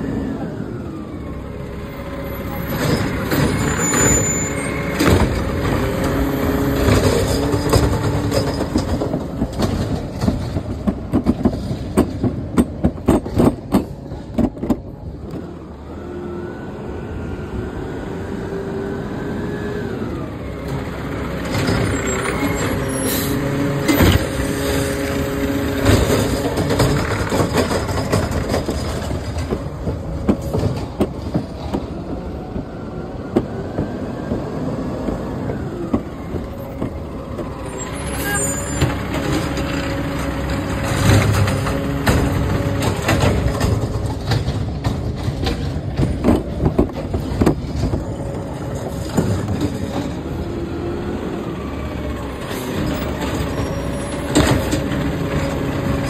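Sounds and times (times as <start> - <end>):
diesel engine running: 0.0 - 56.0
hydraulic arm lifting cart: 0.0 - 56.0
cart knocks and bangs: 2.7 - 14.9, 25.8 - 32.0, 35.9 - 50.4.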